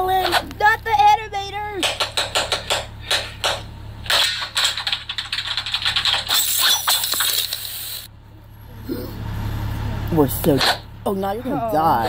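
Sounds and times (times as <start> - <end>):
stylus tapping and scratching on screen: 1.8 - 7.8.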